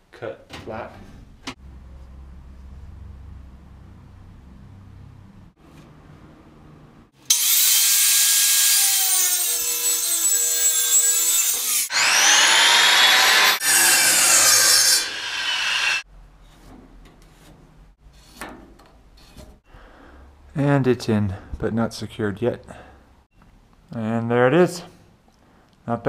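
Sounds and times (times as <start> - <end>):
power tool cutting wood: 7.3 - 16.0.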